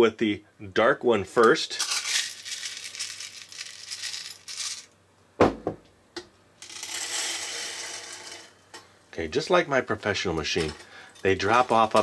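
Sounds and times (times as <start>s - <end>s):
popcorn kernels rattling: 1.7s - 4.9s, 6.6s - 8.5s
knock: 5.4s - 5.8s.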